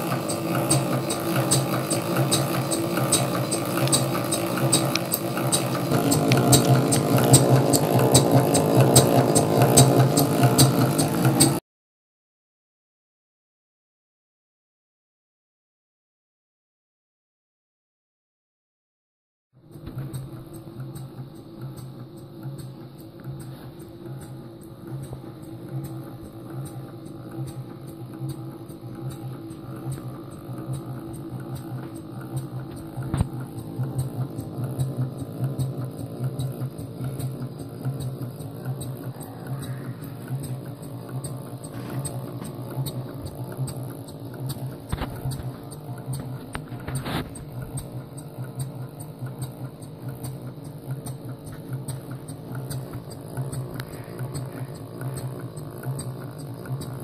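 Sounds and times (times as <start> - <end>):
light regular ticks: 0.0 - 11.6, 19.8 - 57.0
steam engine pulsing hum: 0.0 - 11.6, 19.6 - 57.0.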